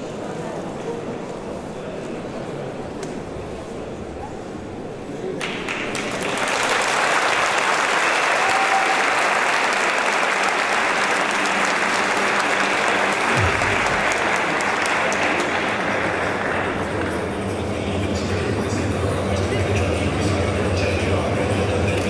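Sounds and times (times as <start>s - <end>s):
audience applauding: 5.4s - 17.4s.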